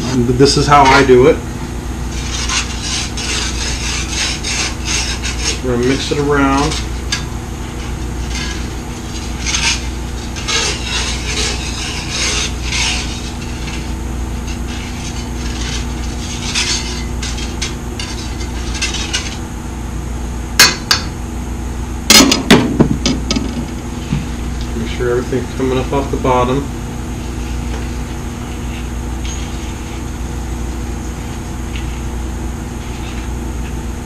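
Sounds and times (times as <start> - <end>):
utensil scraping metal skillet: 0.0 - 1.4, 2.0 - 19.5, 27.3 - 32.1, 32.8 - 33.4.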